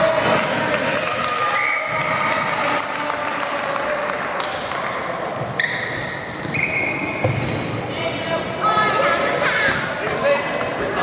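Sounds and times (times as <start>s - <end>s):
shoes squeaking on hardwood floor: 5.4s - 7.9s.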